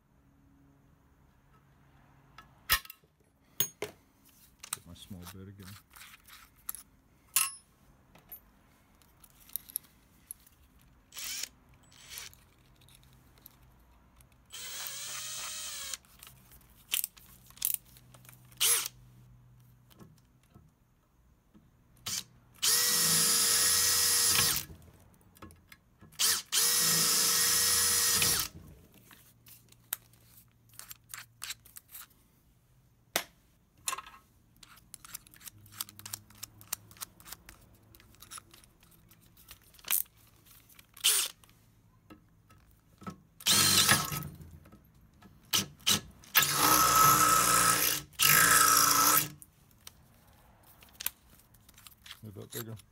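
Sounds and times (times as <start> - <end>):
electric drill whine: 14.5 - 16.0, 22.6 - 24.7, 26.2 - 28.5, 43.4 - 44.2, 46.4 - 49.3.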